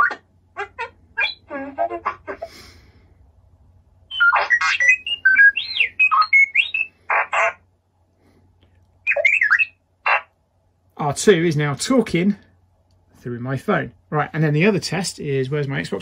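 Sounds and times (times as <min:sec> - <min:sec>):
robot beeps and whistles: 0:00.0 - 0:00.2, 0:04.1 - 0:07.0, 0:09.1 - 0:09.8.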